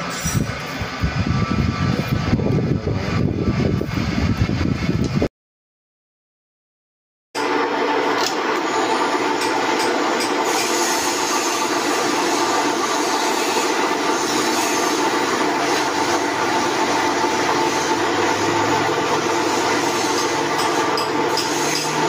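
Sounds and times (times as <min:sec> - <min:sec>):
drill press running: 0:07.4 - 0:22.0.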